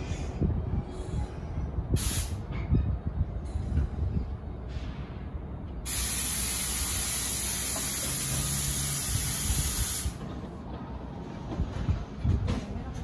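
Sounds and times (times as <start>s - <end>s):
compressed air hissing: 2.0s - 2.4s, 5.8s - 10.2s.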